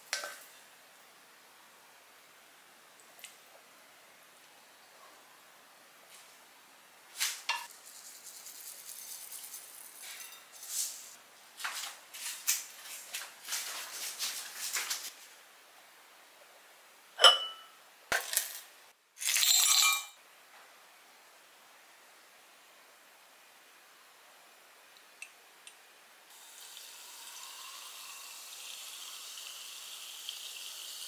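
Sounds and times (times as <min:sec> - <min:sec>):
dishes scraping and rustling: 0:08.9 - 0:11.2, 0:19.2 - 0:20.2
sharp clinks of dishes: 0:17.2 - 0:17.7, 0:19.3 - 0:20.2.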